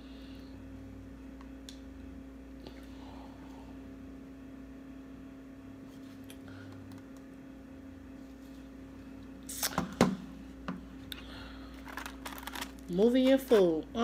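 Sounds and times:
steady low hum: 0:00.0 - 0:14.0
paper wrapper crinkling: 0:11.7 - 0:13.8.

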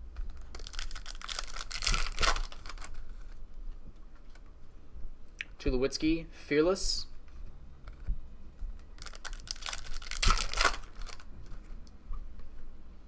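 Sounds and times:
foil wrapper crinkling and tearing: 0:00.3 - 0:03.4, 0:09.0 - 0:11.3.

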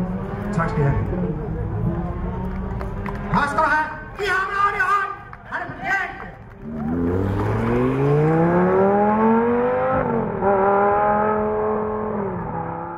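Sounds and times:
sports car engine accelerating: 0:00.0 - 0:03.6, 0:06.4 - 0:12.9.

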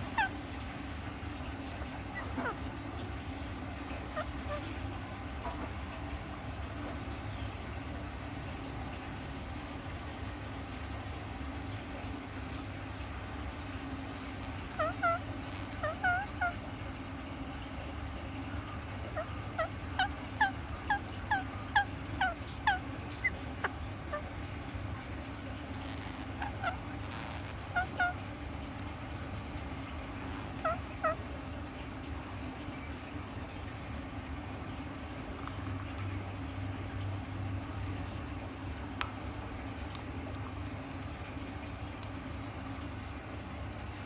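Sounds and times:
parakeet calls: 0:00.0 - 0:00.4, 0:01.3 - 0:03.1, 0:03.8 - 0:05.7, 0:14.2 - 0:16.7, 0:19.1 - 0:24.8, 0:25.6 - 0:28.8, 0:30.1 - 0:31.3
steady low hum: 0:00.0 - 0:44.0.

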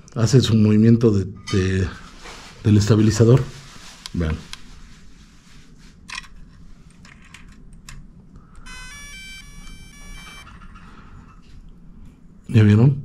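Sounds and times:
electronic start-up beep tune: 0:08.7 - 0:10.4.

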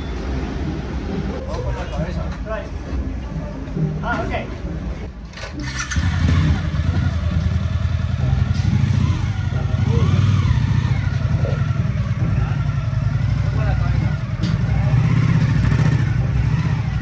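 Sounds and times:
motorcycle engine idling: 0:05.6 - 0:17.0.

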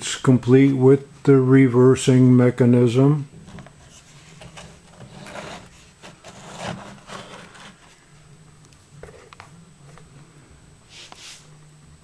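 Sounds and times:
metal model scraping on tabletop: 0:03.9 - 0:07.8.

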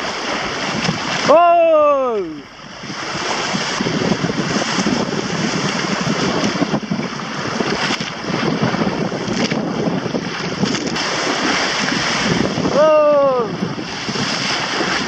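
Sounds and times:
choppy water slapping hull: 0:00.0 - 0:15.0
wind buffeting microphone: 0:00.0 - 0:15.0.

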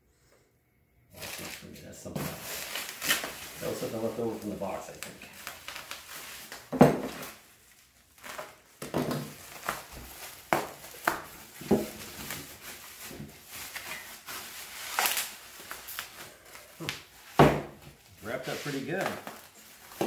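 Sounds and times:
bubble wrap crinkling: 0:01.2 - 0:20.0.

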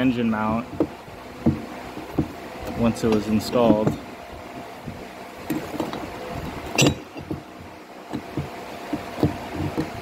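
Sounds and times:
rubber mount knocking on steel: 0:00.7 - 0:02.8, 0:06.7 - 0:10.0.

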